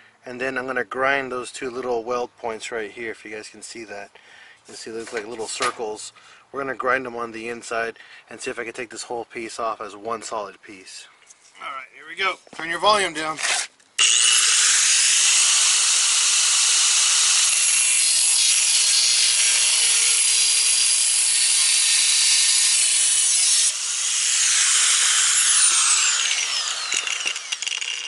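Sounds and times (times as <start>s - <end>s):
angle grinder cutting steel: 13.4s - 28.0s.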